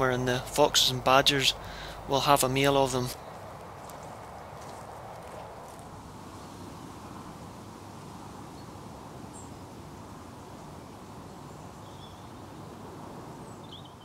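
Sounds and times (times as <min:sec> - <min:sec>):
rushing background noise: 0:00.0 - 0:14.0
faint bird chirps: 0:10.8 - 0:12.5, 0:13.4 - 0:14.0.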